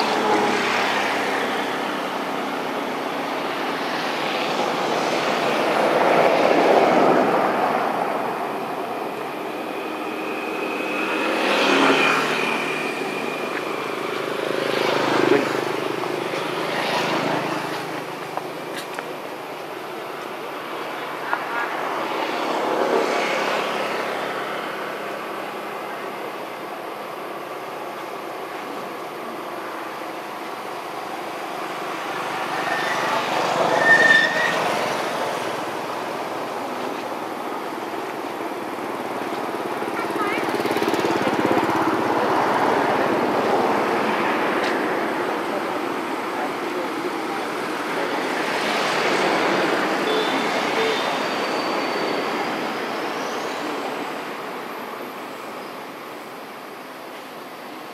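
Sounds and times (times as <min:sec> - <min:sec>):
passing motor vehicles: 0:00.0 - 0:57.5
brief high squeal: 0:32.6 - 0:34.8.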